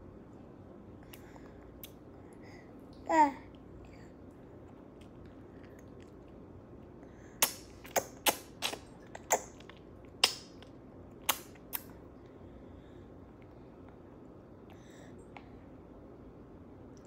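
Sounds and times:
baby chewing with lip smacks: 0:01.0 - 0:02.4, 0:04.3 - 0:12.0.

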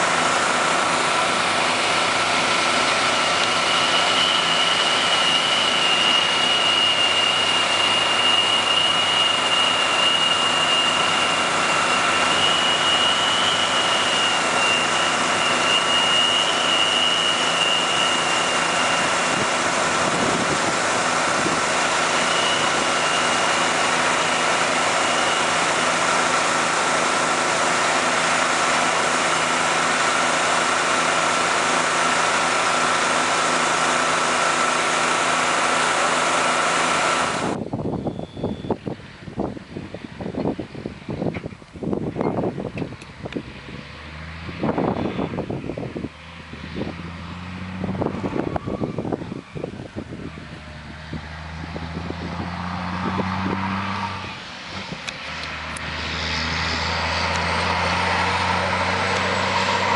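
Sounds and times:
steady whine: 0:00.0 - 0:43.8
diesel engines running: 0:00.0 - 0:59.9
higher whine: 0:00.0 - 0:59.9.

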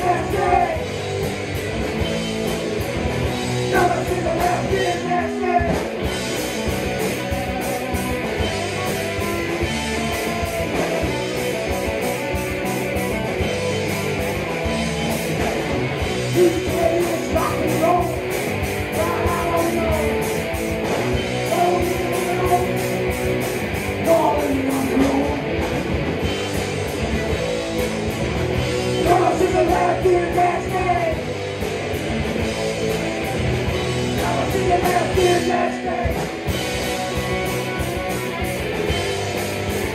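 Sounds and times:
man singing: 0:00.0 - 0:00.9, 0:03.6 - 0:06.0, 0:16.3 - 0:18.2, 0:18.9 - 0:20.4, 0:21.4 - 0:22.9, 0:24.0 - 0:25.5, 0:29.0 - 0:31.3, 0:34.2 - 0:36.4
bass guitar: 0:00.0 - 0:39.9
drums: 0:00.0 - 0:39.9
electric guitars: 0:00.0 - 0:39.9.

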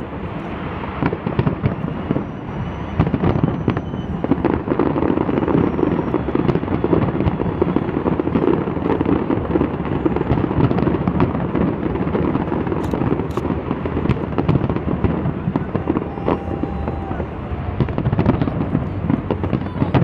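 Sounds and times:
fireworks bursting and crackling: 0:00.0 - 0:20.0
sharp cracks: 0:12.3 - 0:17.2.

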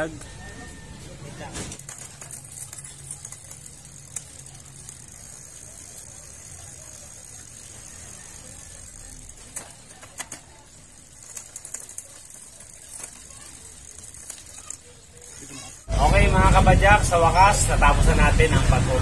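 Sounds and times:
bicycle drivetrain running: 0:00.0 - 0:19.0
chain clicking: 0:01.8 - 0:15.9.

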